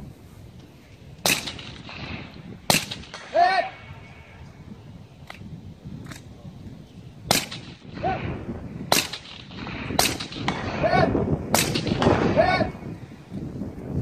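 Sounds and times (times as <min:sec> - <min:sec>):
loud sharp rifle shots: 0:01.2 - 0:03.4, 0:07.3 - 0:12.5.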